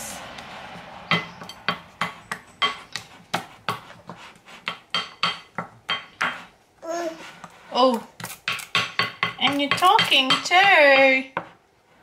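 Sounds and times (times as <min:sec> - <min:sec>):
wooden spoon knocking glass bowl: 0:08.5 - 0:11.5.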